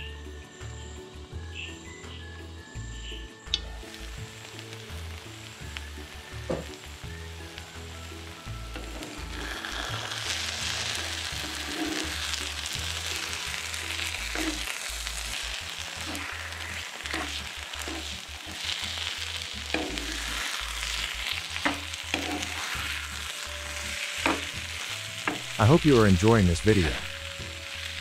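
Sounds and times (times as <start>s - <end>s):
food sizzling in frying pan: 3.5s - 28.0s
metal spatula scraping pan: 8.8s - 12.8s, 13.7s - 25.6s.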